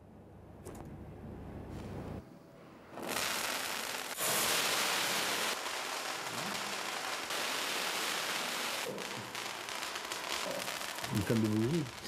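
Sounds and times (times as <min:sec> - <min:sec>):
firework fountain hissing: 0:03.0 - 0:12.0.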